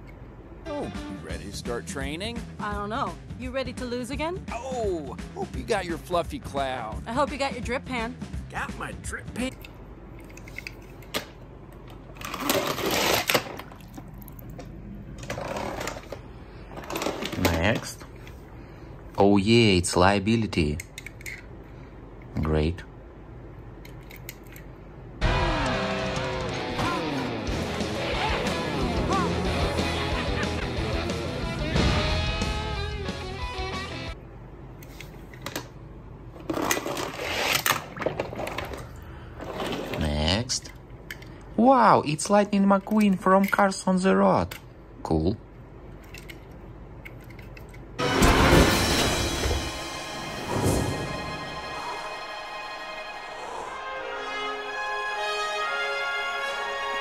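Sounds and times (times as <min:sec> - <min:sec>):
music: 0:00.6 - 0:09.6, 0:25.2 - 0:34.2, 0:48.0 - 0:57.0
toy cars clattering and rattling: 0:36.4 - 0:41.3.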